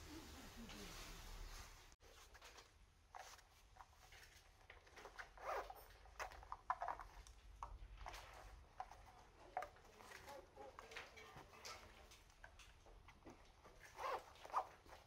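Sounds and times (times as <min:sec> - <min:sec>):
fabric pouch rustling: 0:01.4 - 0:07.2, 0:13.6 - 0:15.0
zipper rasps: 0:05.0 - 0:06.4, 0:13.8 - 0:15.0.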